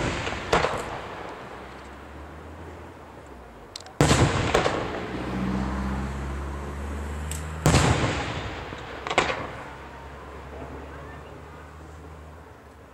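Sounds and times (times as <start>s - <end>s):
fireworks bangs: 0.0s - 2.1s, 3.9s - 5.5s, 7.3s - 11.2s
small fireworks cracks: 0.0s - 2.1s, 3.2s - 5.2s, 7.2s - 11.2s.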